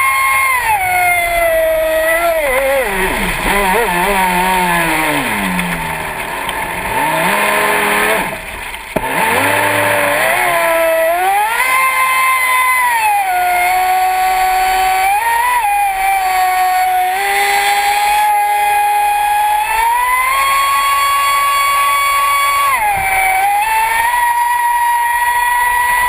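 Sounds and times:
water rushing past hull: 0:00.0 - 0:12.8
electric motor whining: 0:00.0 - 0:26.0.

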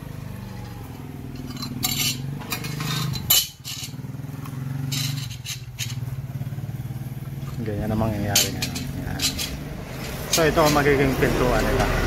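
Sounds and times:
engine humming: 0:00.0 - 0:12.0
metal pieces clinking and scraping: 0:00.4 - 0:04.0, 0:04.8 - 0:06.2, 0:08.2 - 0:10.9.

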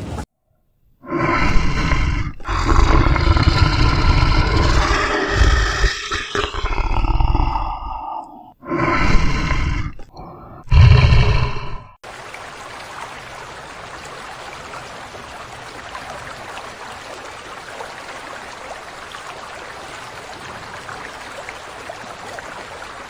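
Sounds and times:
rushing water: 0:01.2 - 0:07.8, 0:12.0 - 0:23.0.

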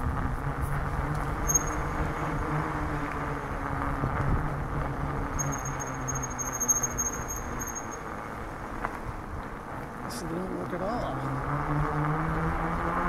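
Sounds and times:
high-pitched whine: 0:00.0 - 0:08.5
bicycle tyres on wet road: 0:00.0 - 0:13.0.

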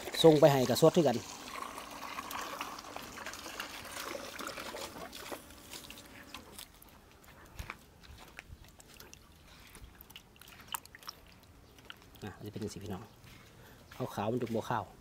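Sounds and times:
liquid trickling and sloshing: 0:00.0 - 0:07.3, 0:08.0 - 0:13.4.

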